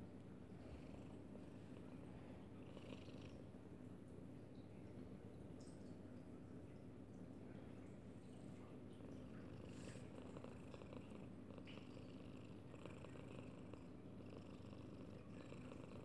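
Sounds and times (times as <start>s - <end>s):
cat purring: 0.5s - 3.5s, 8.1s - 16.0s.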